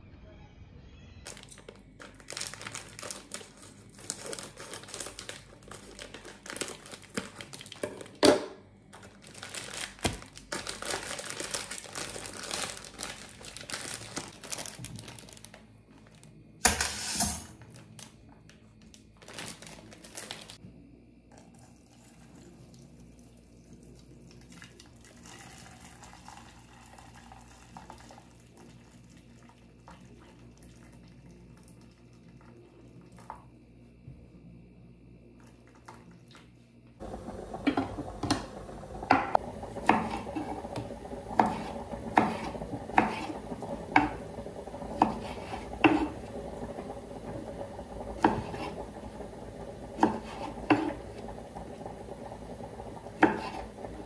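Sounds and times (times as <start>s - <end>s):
plastic wrapping crinkling: 1.2s - 8.2s, 8.9s - 16.4s, 17.0s - 20.6s.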